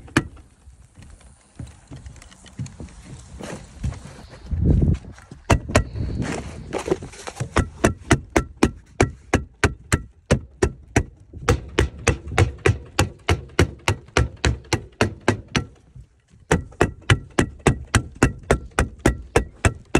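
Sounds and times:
hammer striking fasteners: 0.0 - 0.4, 5.5 - 6.0, 7.4 - 19.9.

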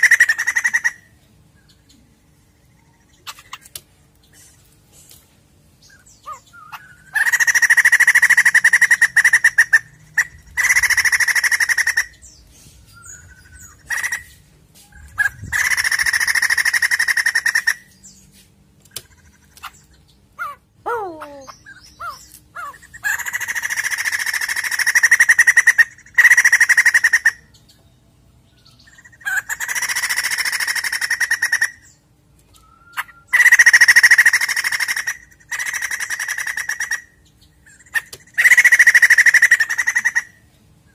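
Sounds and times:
laughingthrush harsh chattering song: 0.0 - 1.1, 6.2 - 12.4, 13.2 - 14.4, 15.0 - 17.9, 20.4 - 27.5, 28.9 - 31.9, 33.0 - 37.1, 37.7 - 40.4.

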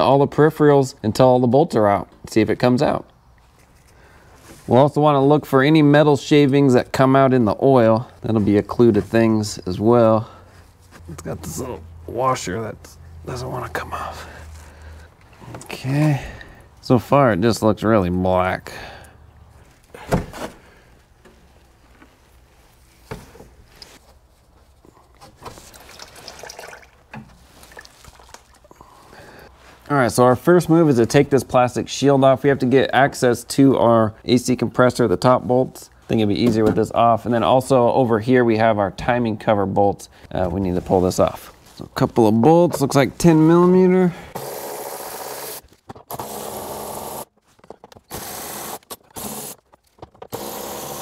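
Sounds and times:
oil pouring into pan: 25.7 - 28.6
electric ratchet running in bursts: 44.4 - 47.3, 48.1 - 49.6, 50.3 - 51.0.

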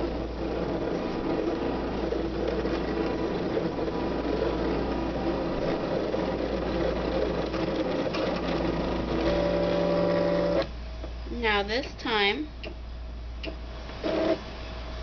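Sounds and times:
cutting machine motors whirring: 0.0 - 10.7.

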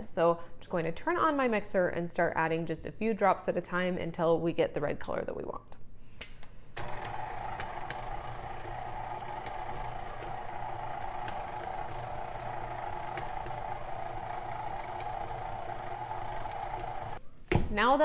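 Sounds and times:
stand mixer motor humming: 6.8 - 17.2.

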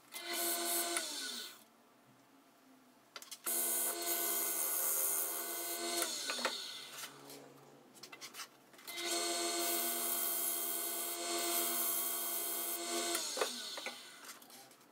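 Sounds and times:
wood lathe motor whining: 8.9 - 14.2.

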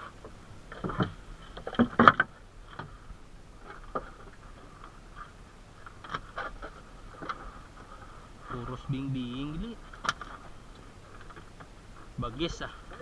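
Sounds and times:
faint steady hum: 0.0 - 13.0
fish and net knocking on wooden hull: 0.7 - 3.0.

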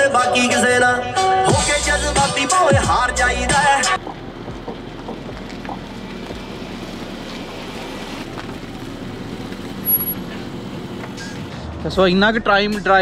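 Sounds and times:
background music: 0.0 - 5.9.

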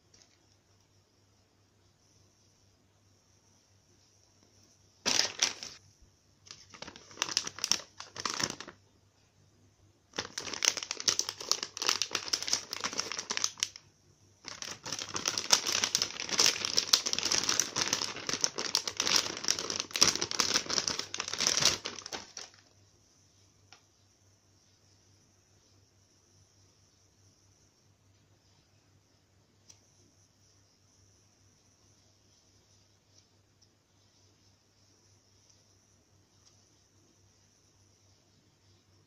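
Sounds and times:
plastic bag crinkling: 5.0 - 5.8, 6.5 - 8.8, 10.1 - 22.7.

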